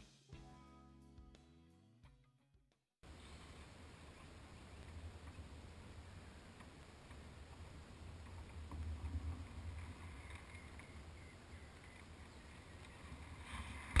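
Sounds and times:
wind and water rumble: 3.4 - 14.0.

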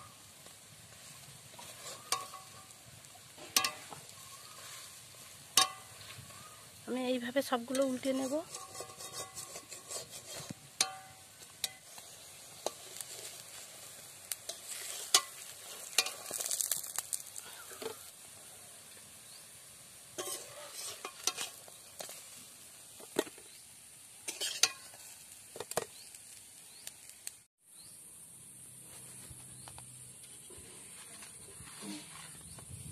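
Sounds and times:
fritters sizzling in oil: 0.0 - 28.0
metal spatula scraping pan: 1.4 - 6.8, 7.5 - 16.6, 20.2 - 22.2, 24.2 - 25.1.

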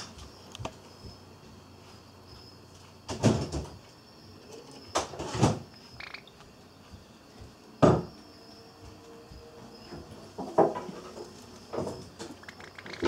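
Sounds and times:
knocks and rattles in birdcage: 3.1 - 3.8, 4.9 - 6.2, 7.8 - 8.2, 9.9 - 13.0.

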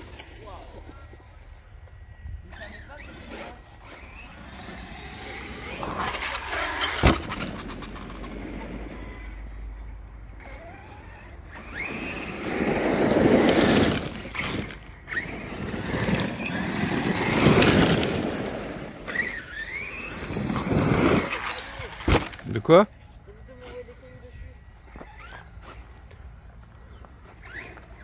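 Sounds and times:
electric motor whine: 0.0 - 22.5
tyres spraying gravel: 11.6 - 22.9.

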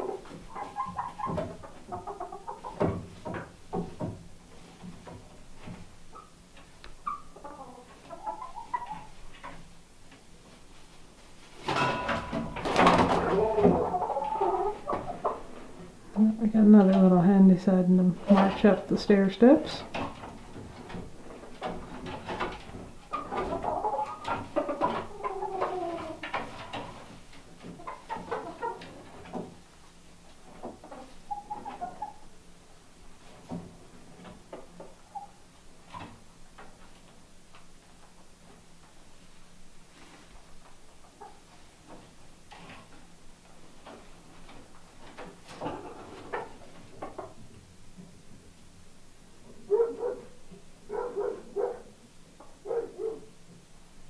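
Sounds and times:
hens cooing softly: 0.0 - 3.0, 7.0 - 9.3, 13.0 - 17.2, 23.1 - 26.5, 30.6 - 32.5, 45.5 - 47.5.

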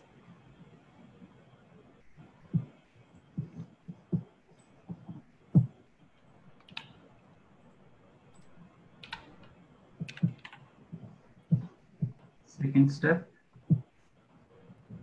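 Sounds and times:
keyboard and mouse clicks: 6.6 - 7.0, 8.3 - 10.6.

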